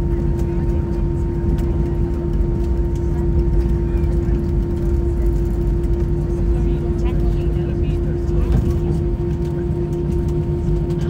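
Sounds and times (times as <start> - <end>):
aircraft engines and airflow rumble: 0.0 - 11.0
constant cabin hum: 0.0 - 11.0.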